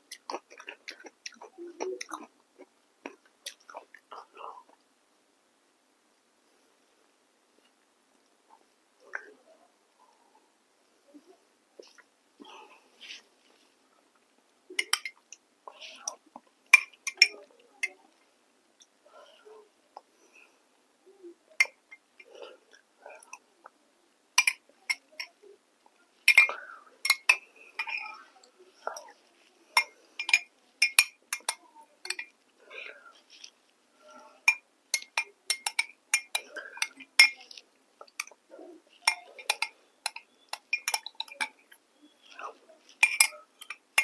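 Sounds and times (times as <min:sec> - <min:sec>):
soft mouth sounds: 0:00.0 - 0:04.8, 0:11.0 - 0:23.8, 0:24.4 - 0:44.0
soft chewing: 0:00.0 - 0:05.0, 0:06.2 - 0:44.0
wet mouth clicks and smacks: 0:00.1 - 0:04.1
metal spoon clinking on glass mug: 0:29.8 - 0:32.3, 0:34.4 - 0:37.6, 0:39.0 - 0:41.6.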